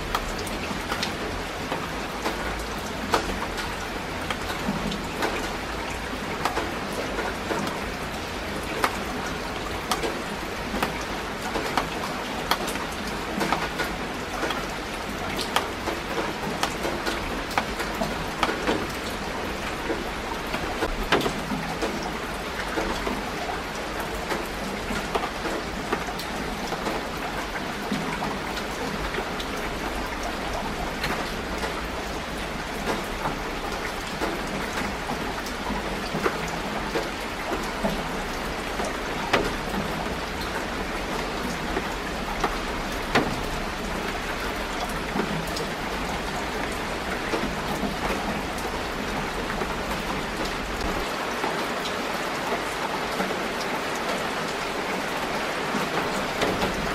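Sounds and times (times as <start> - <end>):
steady rain falling: 0.0 - 56.9
close raindrop hits: 24.2 - 52.0.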